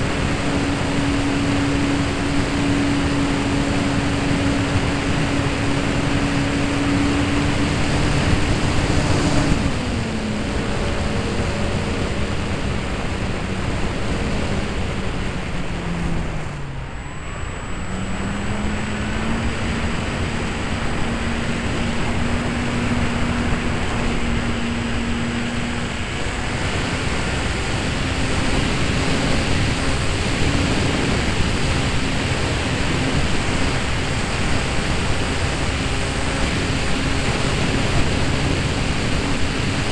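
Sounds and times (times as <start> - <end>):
electric motor and propeller hum: 0.0 - 39.9
wind rush: 0.0 - 39.9.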